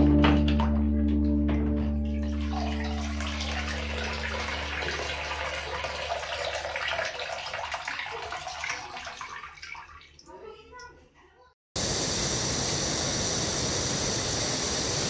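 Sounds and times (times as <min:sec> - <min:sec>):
guitar music: 0:00.0 - 0:05.0
water splashing into tub: 0:00.0 - 0:11.0
water streaming and dripping: 0:01.8 - 0:10.9.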